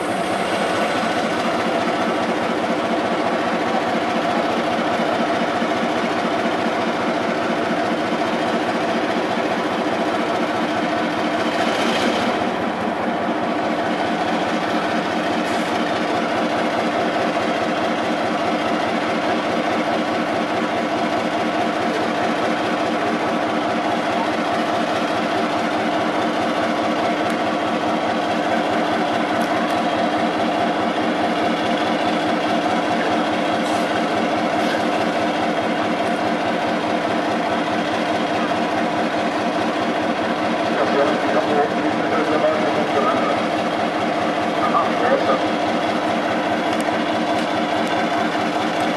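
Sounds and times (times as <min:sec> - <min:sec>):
diesel locomotive engine idling: 0:00.0 - 0:48.9.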